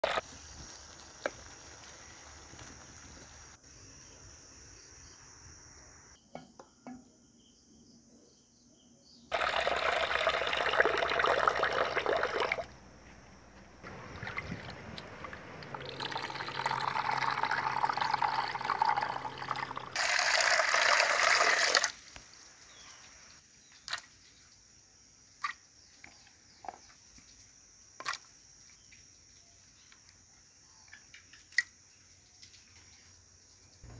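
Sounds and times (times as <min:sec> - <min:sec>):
water splashing in a clay pot: 0:09.3 - 0:12.7, 0:13.8 - 0:22.1, 0:23.8 - 0:24.2, 0:28.0 - 0:28.4
chilies splashing into water: 0:23.8 - 0:24.2.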